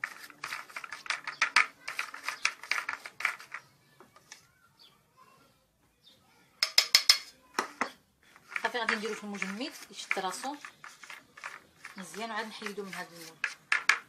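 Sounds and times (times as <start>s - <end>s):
metal spoon scraping plastic mould: 0.0s - 3.7s, 6.6s - 14.0s.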